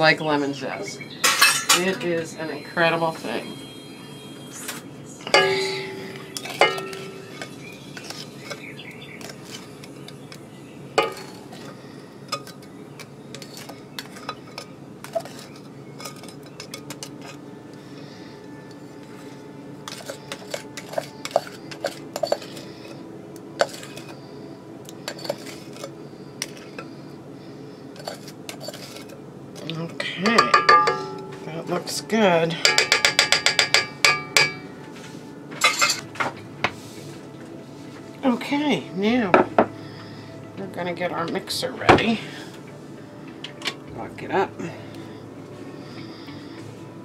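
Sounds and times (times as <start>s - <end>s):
ringing knocks: 5.3s - 7.3s, 30.4s - 31.3s
utensil scraping metal bowl: 5.3s - 10.4s, 11.0s - 17.4s, 19.8s - 23.0s, 23.6s - 24.2s, 25.0s - 26.9s, 28.0s - 29.2s.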